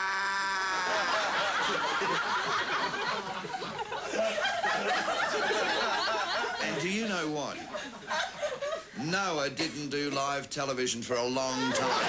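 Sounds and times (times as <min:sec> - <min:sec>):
audience laughing: 0:00.7 - 0:09.0, 0:11.5 - 0:12.0.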